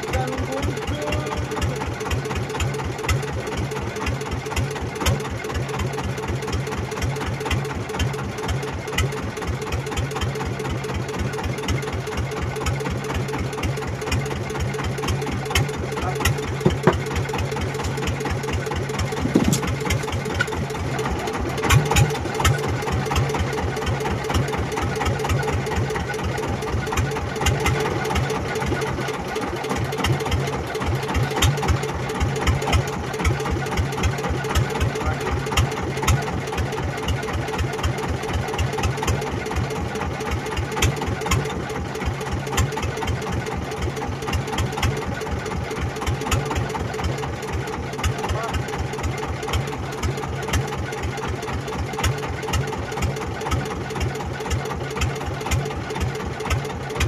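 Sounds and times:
boat engine idling: 0.0 - 57.0
louder engine knocks: 0.8 - 5.6, 14.1 - 23.6.

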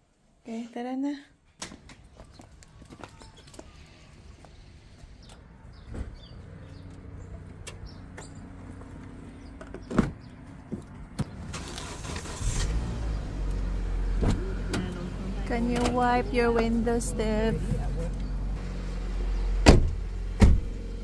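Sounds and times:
car engine starting and running: 4.7 - 21.0.

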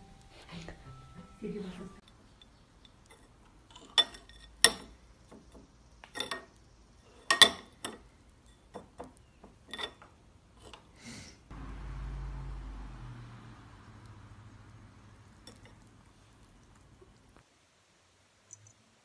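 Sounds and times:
metal spoon clinking on bowl: 15.4 - 15.9.

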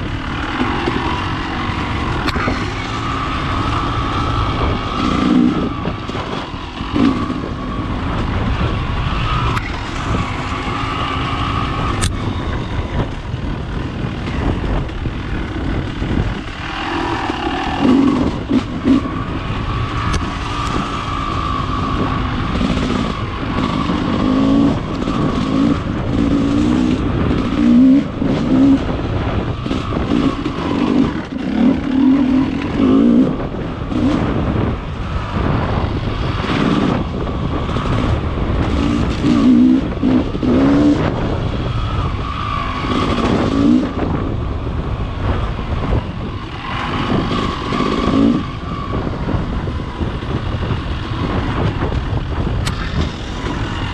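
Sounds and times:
dirt bike engine revving: 0.0 - 53.9
steady rushing noise: 0.0 - 53.9.

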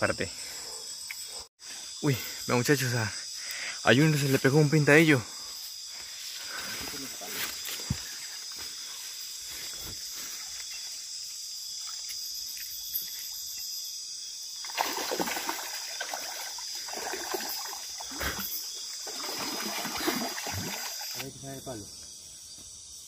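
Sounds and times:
crickets trilling: 0.0 - 23.0
water splashing: 14.6 - 21.2.

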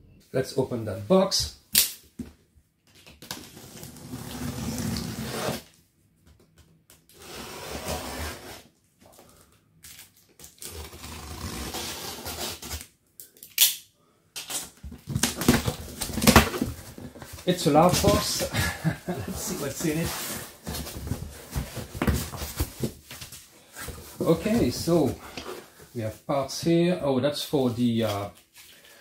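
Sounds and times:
knife slitting packing tape: 10.5 - 15.6
tape and cardboard crackling: 14.4 - 25.8.

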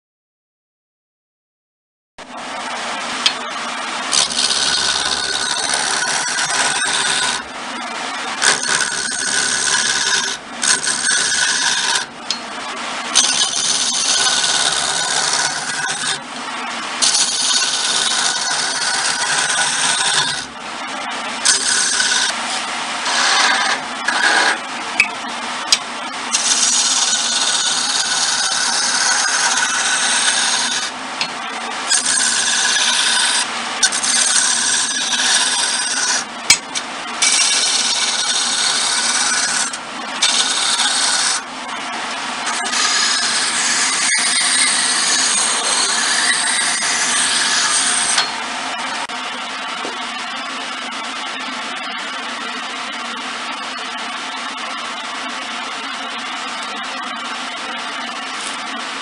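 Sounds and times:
chisel cutting wood on lathe: 4.1 - 7.5, 8.4 - 12.4, 13.1 - 16.2, 17.0 - 20.6, 21.3 - 24.6, 26.3 - 49.1.

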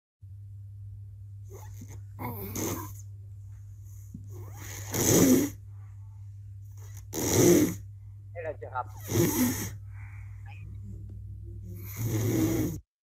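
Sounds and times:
steady low hum: 0.2 - 12.9
child snoring: 1.5 - 3.0, 4.3 - 5.6, 6.8 - 7.8, 8.9 - 9.8, 11.7 - 12.9.

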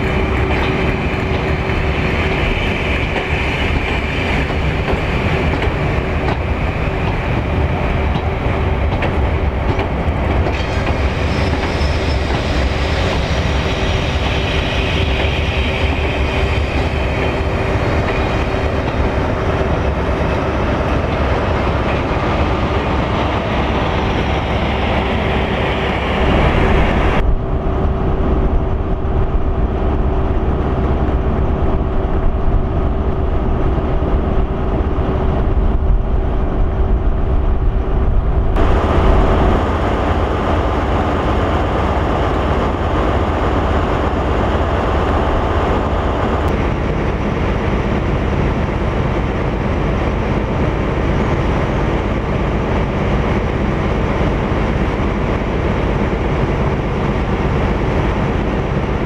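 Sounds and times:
diesel train rumbling past: 0.0 - 59.0.

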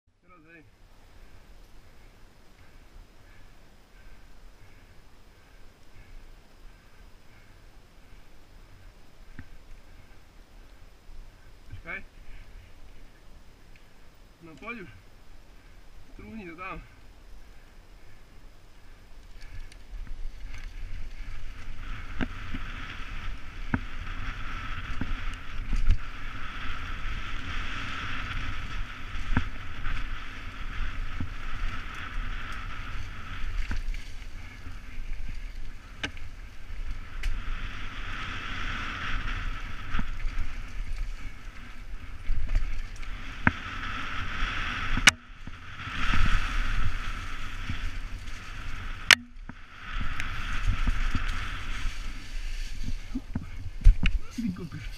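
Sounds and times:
wind hiss: 0.6 - 54.9
bike knocking and rattling: 19.4 - 37.5.

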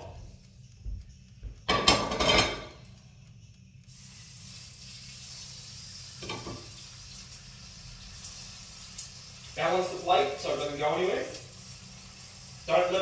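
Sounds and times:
food sizzling in oiled pan: 0.0 - 13.0
plate clattering on pan: 1.7 - 2.7.

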